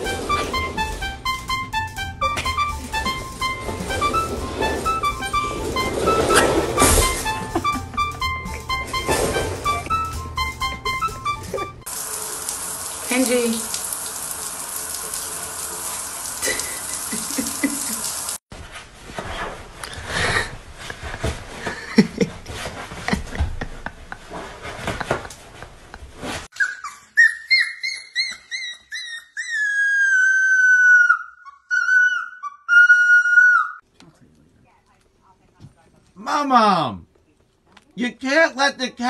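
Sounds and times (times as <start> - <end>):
puppy yelping and howling: 26.6 - 33.8.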